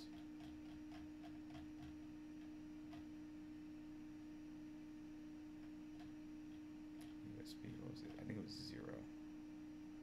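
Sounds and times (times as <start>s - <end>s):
mouse scroll wheel clicks: 0.0s - 3.1s
steady low hum: 0.0s - 10.0s.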